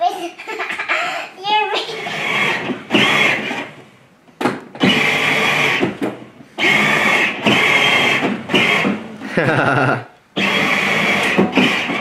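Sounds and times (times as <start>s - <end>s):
toy car motors whining: 1.9s - 3.7s, 4.8s - 6.0s, 6.6s - 9.0s, 10.4s - 12.0s.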